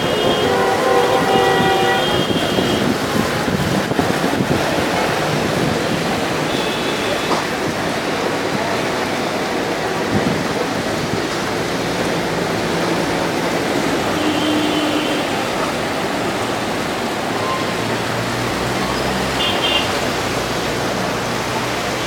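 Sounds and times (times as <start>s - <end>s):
heavy rain on street: 0.0s - 22.0s.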